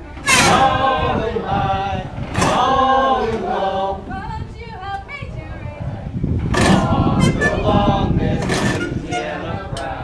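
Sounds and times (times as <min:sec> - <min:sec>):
group singing unaccompanied: 0:00.0 - 0:04.6, 0:05.8 - 0:10.0.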